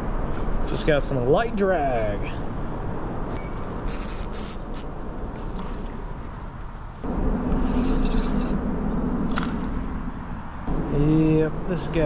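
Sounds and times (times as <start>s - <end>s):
reel cranking whir: 3.9s - 4.9s
reel drag buzzing: 3.9s - 5.0s, 7.5s - 8.6s.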